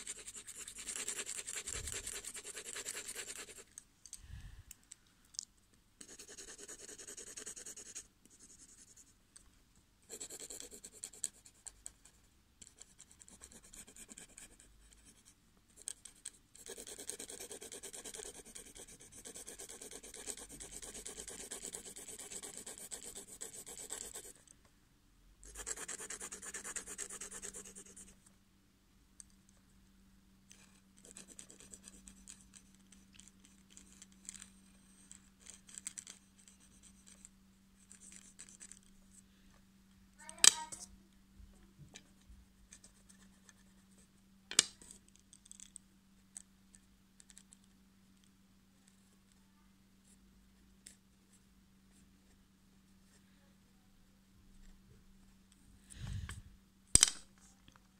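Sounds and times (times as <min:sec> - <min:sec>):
pencil scratching on paper: 0:00.0 - 0:03.7, 0:06.0 - 0:09.1, 0:10.1 - 0:24.4, 0:25.4 - 0:28.2, 0:30.6 - 0:34.0, 0:35.4 - 0:38.7
faint steady low hum: 0:00.0 - 0:57.9.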